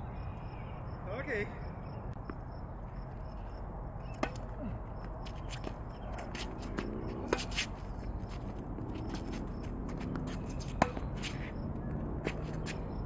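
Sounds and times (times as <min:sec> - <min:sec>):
tennis balls bouncing on hard court: 0:04.1 - 0:13.0
tennis balls struck by rackets: 0:04.1 - 0:13.0.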